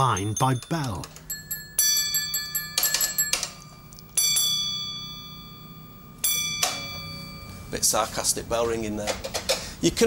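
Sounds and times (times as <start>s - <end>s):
block bell ringing: 0.0s - 8.0s.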